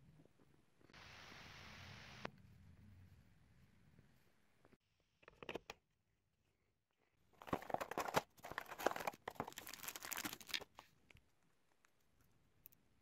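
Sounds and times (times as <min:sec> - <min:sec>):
cardboard and wrapping crinkling: 0:07.4 - 0:11.0.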